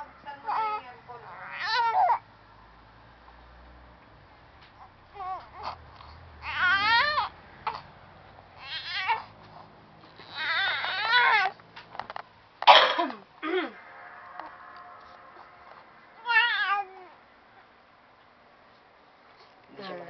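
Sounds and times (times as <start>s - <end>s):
baby whimpering and crying: 0.5s - 2.2s, 4.8s - 7.9s, 8.6s - 9.5s, 10.1s - 11.6s, 16.2s - 17.2s.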